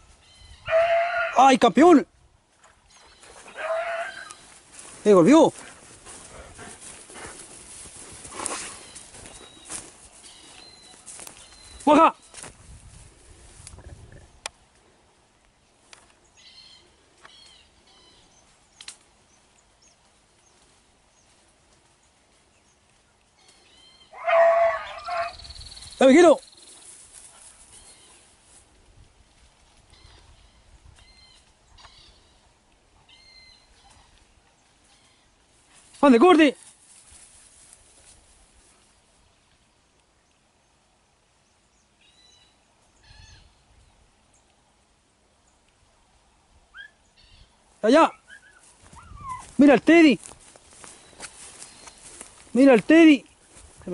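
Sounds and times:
dog baying: 0:03.6 - 0:04.4, 0:24.2 - 0:25.3
faint bird chirps: 0:08.8 - 0:12.4
faint animal calls: 0:23.4 - 0:25.5, 0:48.1 - 0:49.6.

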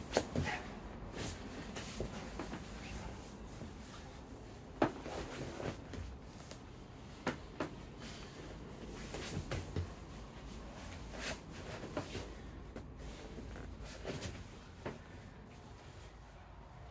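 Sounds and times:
bodies thudding on foam mats: 0:08.8 - 0:10.2.

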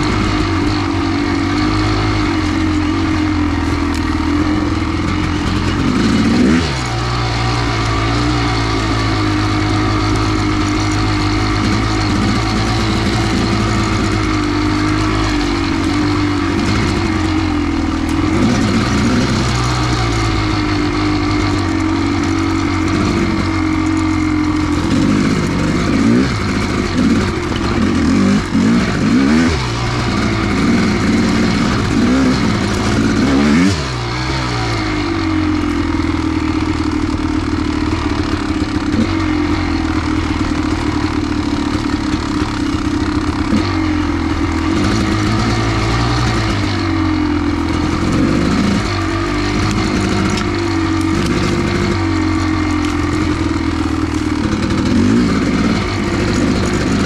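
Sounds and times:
two-stroke motorcycle engine revving: 0:00.0 - 0:57.0.

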